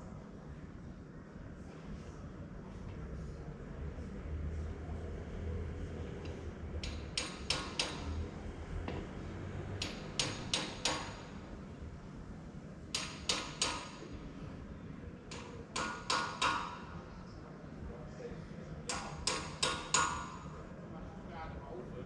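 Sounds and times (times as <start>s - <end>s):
sharp knocks: 6.8s - 8.2s, 9.8s - 11.3s.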